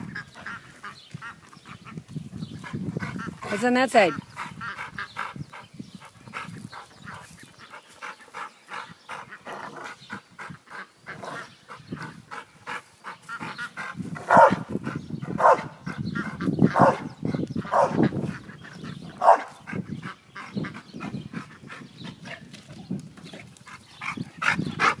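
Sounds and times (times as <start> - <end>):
dog barking: 14.3 - 14.6, 15.4 - 15.7, 16.8 - 17.1, 17.7 - 18.0, 19.2 - 19.6.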